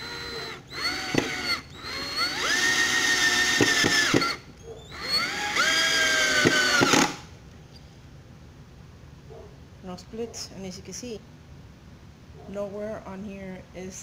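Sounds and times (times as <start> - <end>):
cordless drill whining: 0.0 - 7.3
screw driving into wood: 0.1 - 7.3.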